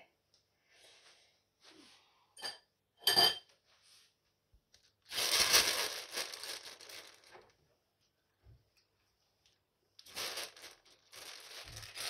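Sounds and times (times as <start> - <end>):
crinkling tearing rustle: 5.1 - 7.6, 10.0 - 12.0.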